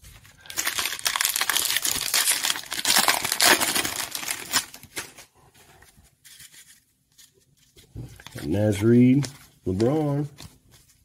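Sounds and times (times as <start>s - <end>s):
foil wrapper crinkling: 0.4s - 5.2s.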